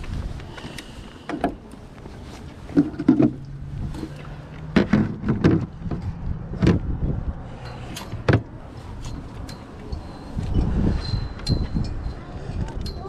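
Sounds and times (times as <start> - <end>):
hollow plastic knocks and clunks: 4.6 - 7.0, 8.2 - 8.5.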